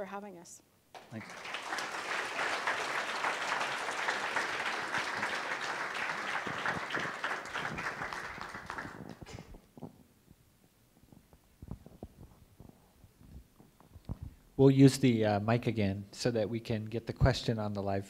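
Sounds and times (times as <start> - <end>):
audience applauding: 1.0 - 9.6.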